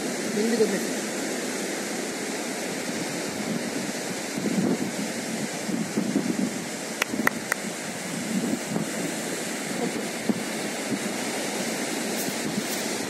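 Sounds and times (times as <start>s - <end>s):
beach surf: 0.0s - 13.0s
wind on microphone: 2.7s - 13.0s
sharp clicks: 7.0s - 7.6s.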